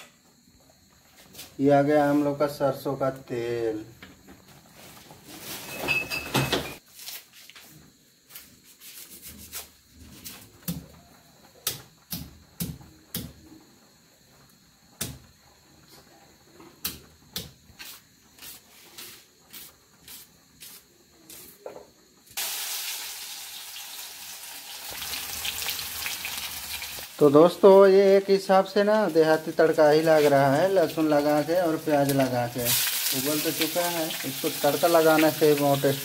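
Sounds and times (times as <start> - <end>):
garlic sizzling in hot oil: 22.3 - 36.0.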